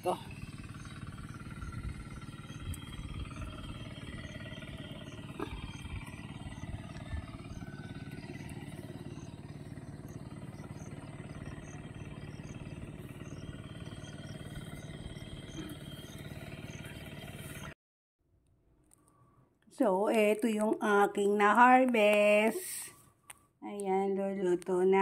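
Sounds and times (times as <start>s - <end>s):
low motor hum: 0.0s - 17.8s
wind rumbling on microphone: 0.5s - 9.0s.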